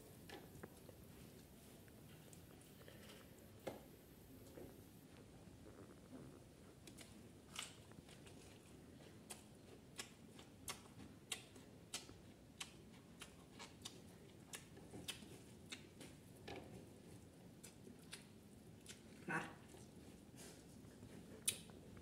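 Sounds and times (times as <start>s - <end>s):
person chewing with mouth clicks: 4.4s - 22.0s.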